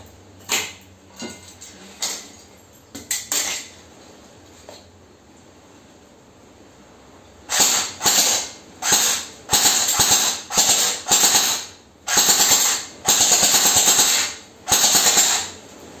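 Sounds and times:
airsoft gun firing bursts: 0:07.5 - 0:15.5.

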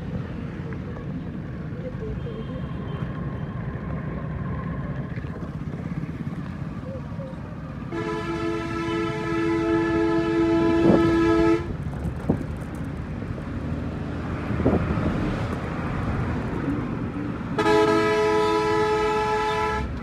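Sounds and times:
motorcycle engine and road noise: 0:00.0 - 0:20.0
vehicle horn blast: 0:07.9 - 0:11.7, 0:17.6 - 0:20.0.

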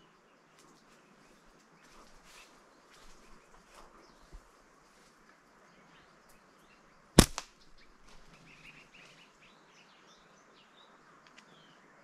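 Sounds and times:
small birds chirping: 0:00.0 - 0:12.0
slingshot snap: 0:07.2 - 0:07.6.

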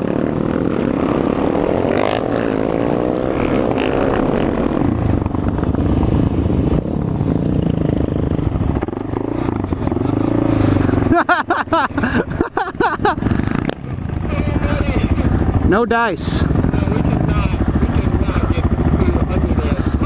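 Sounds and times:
motorcycle engine accelerating: 0:00.0 - 0:20.0.

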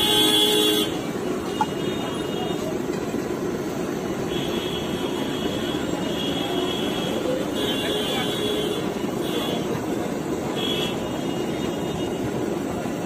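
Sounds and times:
faint vehicle horn: 0:00.0 - 0:02.8, 0:04.3 - 0:09.8, 0:10.5 - 0:12.3
passing street traffic: 0:00.0 - 0:13.0.

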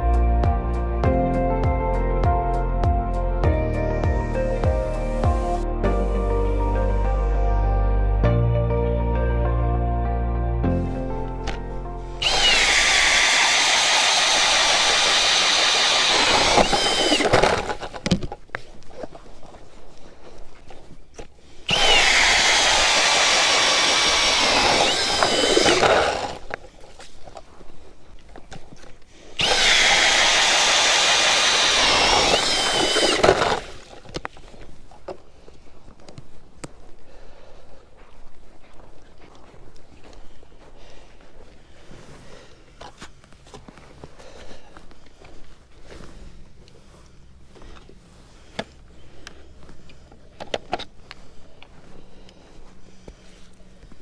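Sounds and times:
drill motor whining: 0:12.2 - 0:18.1, 0:21.7 - 0:26.6, 0:29.4 - 0:34.0
auger grinding ice: 0:12.2 - 0:18.2, 0:21.7 - 0:26.6, 0:29.3 - 0:34.6.

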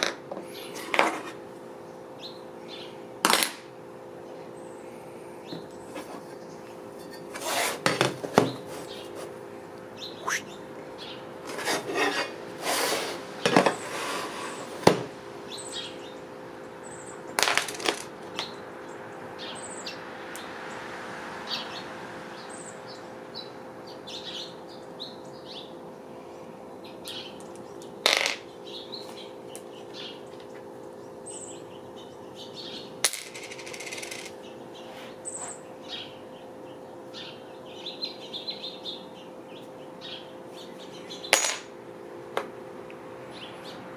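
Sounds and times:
steady hum: 0:00.0 - 0:20.8, 0:21.9 - 0:43.9
birds chirping: 0:01.7 - 0:03.2, 0:04.0 - 0:07.2, 0:08.4 - 0:11.4, 0:15.4 - 0:17.3, 0:18.3 - 0:20.0, 0:21.5 - 0:33.0, 0:34.3 - 0:41.4, 0:43.2 - 0:43.9.

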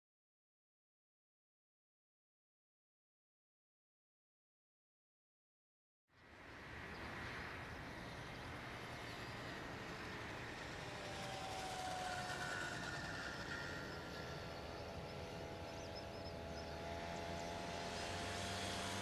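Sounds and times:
distant jet engines at takeoff: 0:06.1 - 0:19.0.

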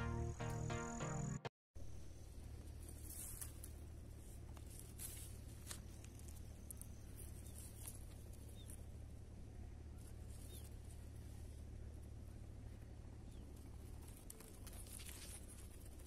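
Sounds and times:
faint high chirps: 0:00.0 - 0:02.3
low steady rumble: 0:00.0 - 0:16.0
soft ticks and rustles: 0:02.4 - 0:16.0.

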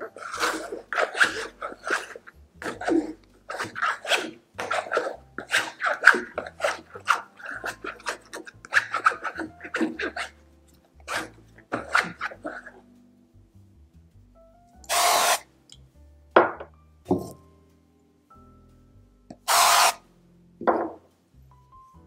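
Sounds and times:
wet dough squishing: 0:00.0 - 0:10.4, 0:11.0 - 0:12.8.

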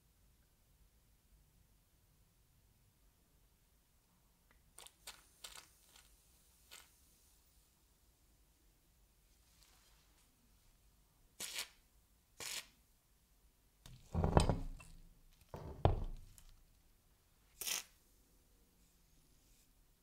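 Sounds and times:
metal tool clunking on workbench: 0:13.9 - 0:15.0, 0:15.6 - 0:16.2.

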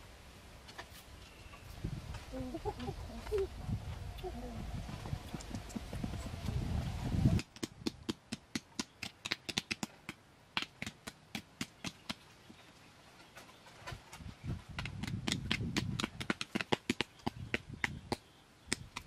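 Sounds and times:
low rumbling noise: 0:01.8 - 0:07.4.

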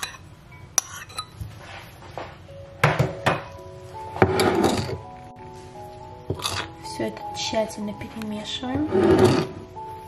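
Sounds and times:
soft background music: 0:00.0 - 0:10.0
metal spoon scraping ceramic plate: 0:00.8 - 0:01.4, 0:04.2 - 0:05.0, 0:08.9 - 0:09.6.

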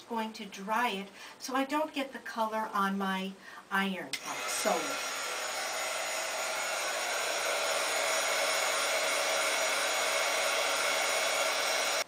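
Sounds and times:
electric craft dryer blowing: 0:04.2 - 0:12.0.

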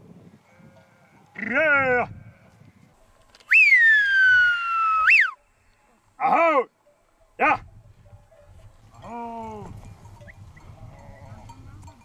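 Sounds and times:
rising and falling call: 0:03.5 - 0:05.4
shepherd's loud whistle: 0:03.5 - 0:05.4.

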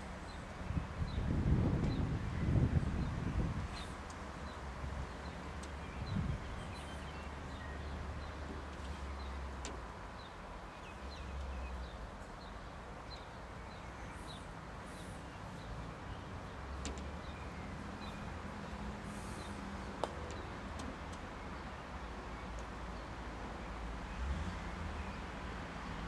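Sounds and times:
wind rumble on microphone: 0:00.2 - 0:09.9.

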